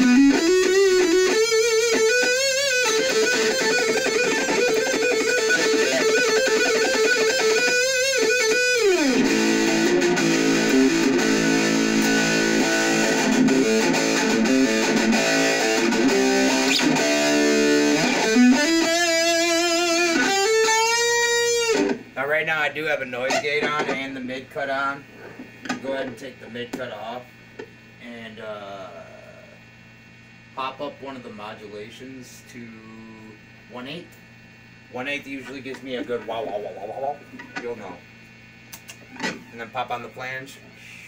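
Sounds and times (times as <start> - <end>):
distorted electric guitar: 0.0 - 22.2, 36.0 - 39.7.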